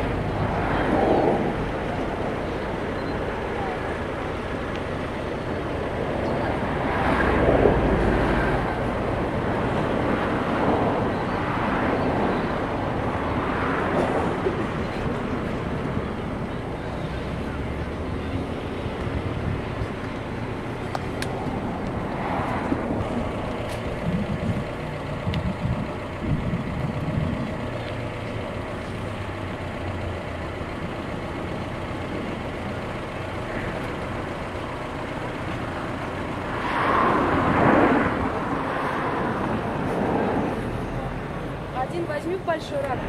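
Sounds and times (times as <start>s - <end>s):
engine humming: 0.0s - 43.0s.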